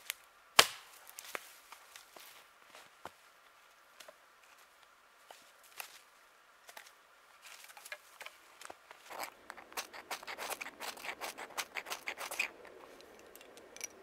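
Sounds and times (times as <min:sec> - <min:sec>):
tinder burning with hiss: 0:00.0 - 0:06.3, 0:08.3 - 0:14.0
knife scraping fire starter: 0:09.0 - 0:14.0.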